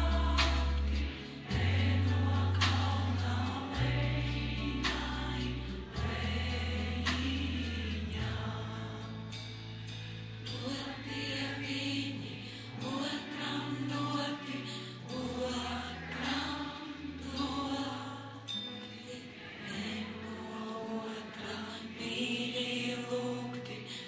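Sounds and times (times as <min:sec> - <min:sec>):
woman singing: 0:00.0 - 0:09.1, 0:10.5 - 0:24.0
low bass notes: 0:00.0 - 0:13.0.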